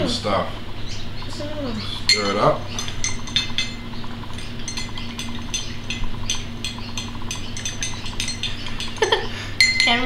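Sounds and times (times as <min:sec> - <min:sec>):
spoon clinking in glass mug: 0:02.1 - 0:10.0.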